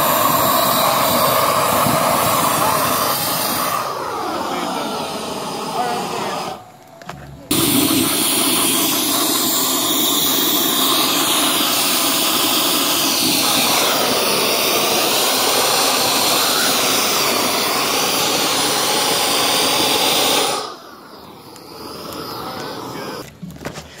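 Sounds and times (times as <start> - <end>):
gas torch flame hissing: 0.0 - 23.3.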